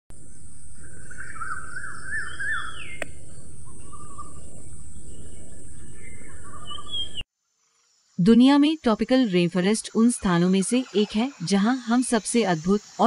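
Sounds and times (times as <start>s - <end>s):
low rushing background: 0.1s - 7.2s
birds singing: 0.2s - 7.3s
sharp click: 3.0s - 3.2s.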